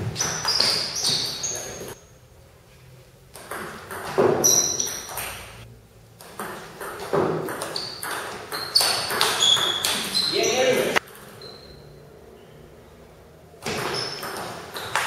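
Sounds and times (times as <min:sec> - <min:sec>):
table tennis ball hits: 0:00.0 - 0:01.9, 0:03.3 - 0:05.6, 0:06.2 - 0:10.3, 0:13.6 - 0:15.0.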